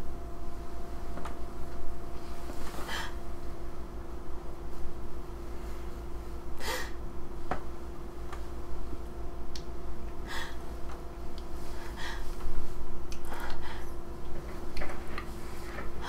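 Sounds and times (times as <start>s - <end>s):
steady low hum: 0.0s - 16.0s
person gasping: 10.2s - 10.6s, 11.7s - 12.4s.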